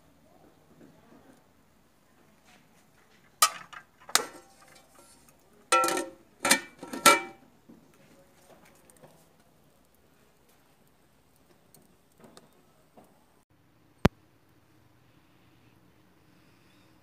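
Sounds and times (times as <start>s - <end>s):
metal pot lid clanging: 3.4s - 7.4s.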